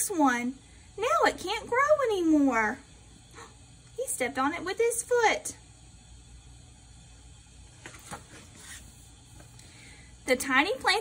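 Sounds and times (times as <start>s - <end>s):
faint low hum: 0.0s - 11.0s
paper page turning: 7.8s - 9.5s.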